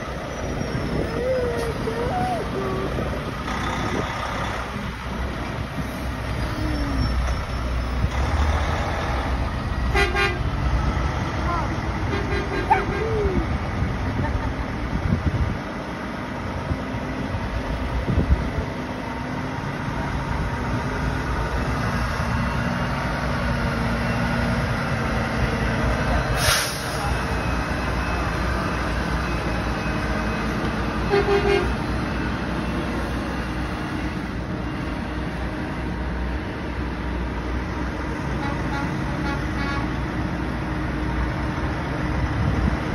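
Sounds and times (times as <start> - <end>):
trucks driving past: 0.0 - 42.9
truck horn toot: 9.9 - 10.5, 12.1 - 13.0, 31.1 - 31.8, 38.3 - 40.0
sharp air hiss: 26.4 - 27.0.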